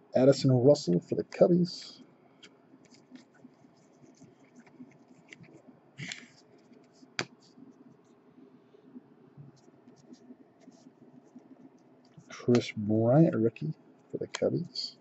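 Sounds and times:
cards sliding scratchily: 2.8s - 7.6s.

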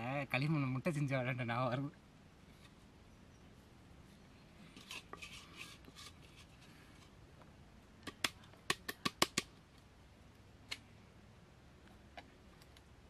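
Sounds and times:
soft rustle: 2.4s - 7.6s.

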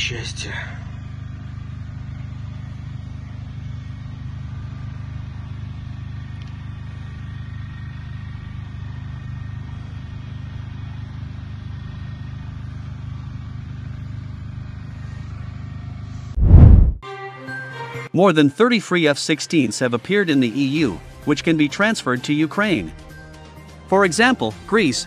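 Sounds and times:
steady low rumble: 16.4s - 17.0s.

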